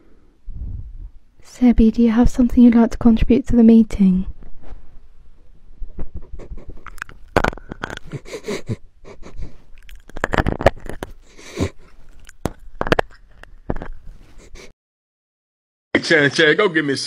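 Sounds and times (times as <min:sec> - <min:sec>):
microphone clicks and rubs: 0:04.3 - 0:05.0, 0:05.8 - 0:08.2, 0:09.4 - 0:14.7
dog sniffing and snuffling: 0:08.0 - 0:12.6, 0:13.8 - 0:14.7.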